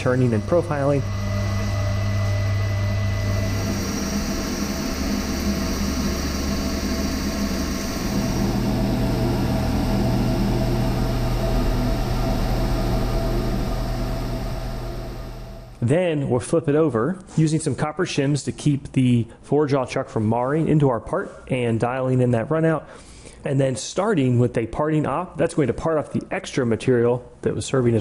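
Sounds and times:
lathe spindle humming: 0:00.0 - 0:15.8.

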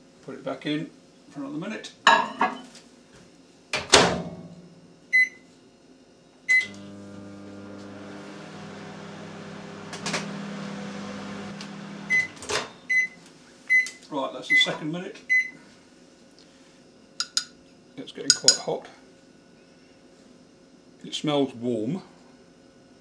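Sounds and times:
microwave humming: 0:06.5 - 0:13.4
microwave keypad beeps: 0:12.1 - 0:13.9.

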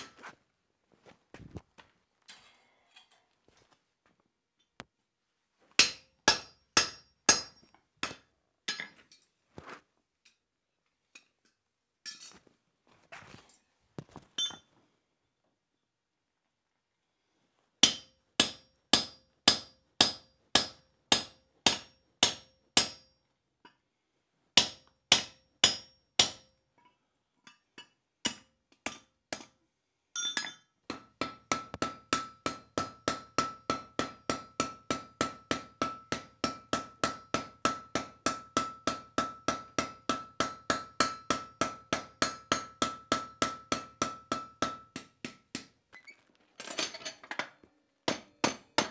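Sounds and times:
hammer striking steel on anvil: 0:05.8 - 0:09.0, 0:17.8 - 0:23.2, 0:24.6 - 0:26.6, 0:27.5 - 0:29.6, 0:30.2 - 0:45.7.

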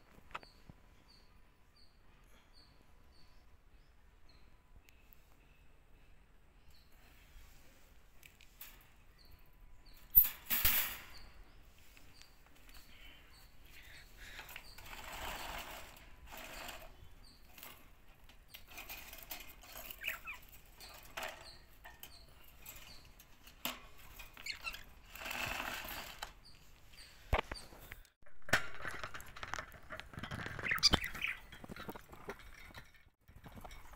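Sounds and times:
soft bird chirps: 0:00.0 - 0:10.3, 0:11.0 - 0:25.7, 0:26.4 - 0:28.1.

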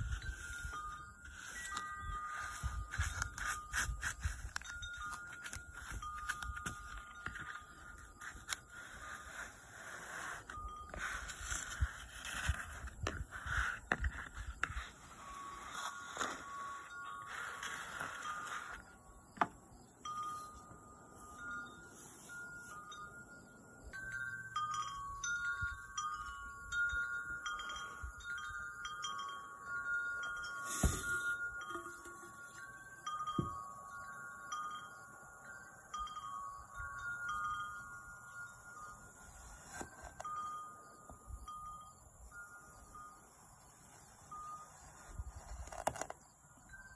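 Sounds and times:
sand scraped with plastic scraper: 0:00.0 - 0:18.9
wind chimes ringing: 0:00.0 - 0:46.9.

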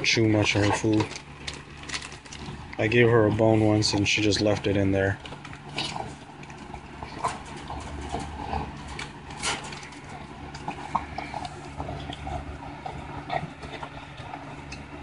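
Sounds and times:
dog chewing meat: 0:00.0 - 0:15.0.

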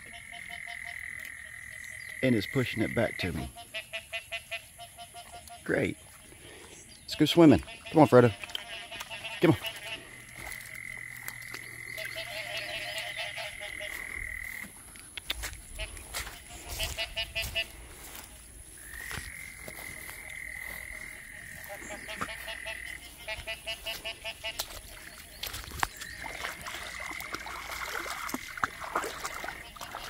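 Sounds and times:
frogs croaking: 0:00.0 - 0:30.0.

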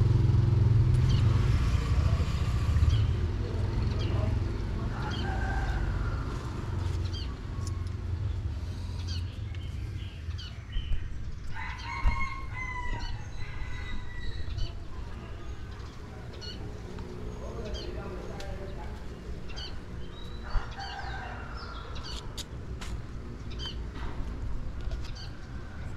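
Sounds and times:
small birds chirping: 0:01.0 - 0:24.0
rooster crowing: 0:04.9 - 0:06.5, 0:11.5 - 0:14.5, 0:20.4 - 0:22.1.

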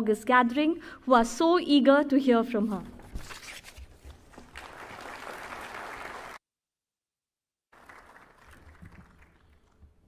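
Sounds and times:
audience applauding: 0:04.5 - 0:06.4, 0:07.7 - 0:09.9.

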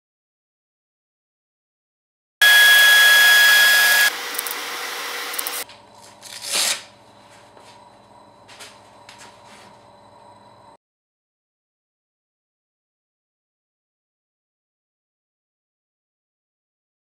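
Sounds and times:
orbital sander whirring: 0:02.4 - 0:05.6.

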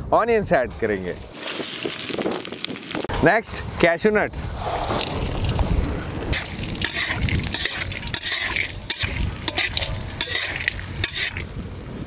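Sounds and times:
onions and nuts sizzling: 0:01.1 - 0:03.1, 0:04.6 - 0:11.4
utensil scraping pan: 0:06.4 - 0:11.4.

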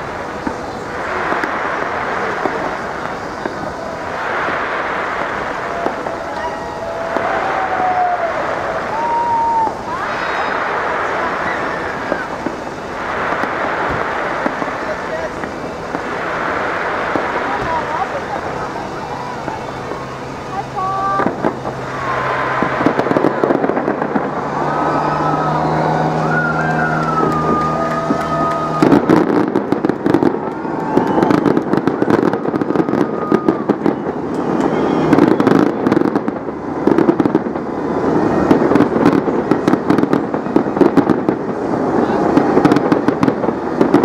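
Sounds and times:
crackling of rapid bangs: 0:00.0 - 0:09.0, 0:09.9 - 0:44.0
fireworks bursting: 0:00.0 - 0:44.0
low drone: 0:00.0 - 0:44.0
gliding whistle-like tones: 0:21.8 - 0:29.0, 0:30.2 - 0:35.8.

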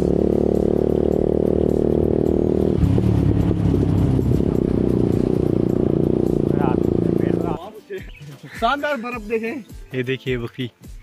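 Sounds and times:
motorcycle engine cruising: 0:00.0 - 0:07.6.

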